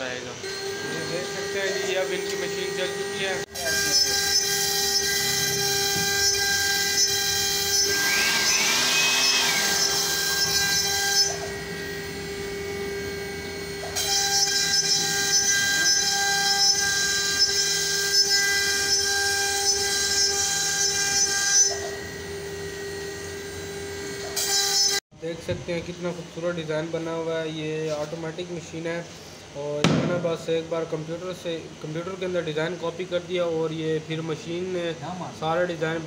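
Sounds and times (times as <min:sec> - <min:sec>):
router spindle high whine: 0:00.0 - 0:25.0
bit cutting wood hiss: 0:07.0 - 0:11.5.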